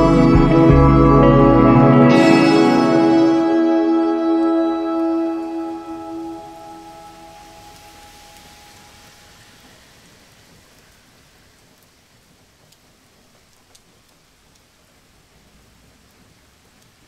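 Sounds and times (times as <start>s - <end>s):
held music notes: 0.0s - 9.7s
rain falling: 0.0s - 17.0s.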